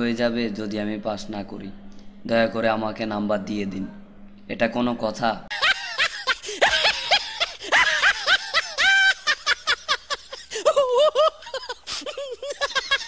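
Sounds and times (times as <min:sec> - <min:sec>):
high-pitched snickering laugh: 0:05.5 - 0:13.0.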